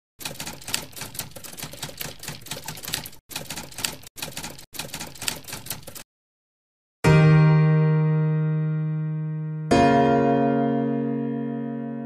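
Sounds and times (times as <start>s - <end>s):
typewriter keys clacking: 0.2s - 6.0s.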